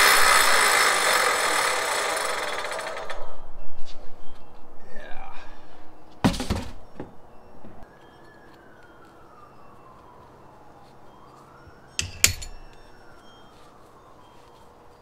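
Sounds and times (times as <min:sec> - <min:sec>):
faint siren wailing: 0:07.5 - 0:15.0.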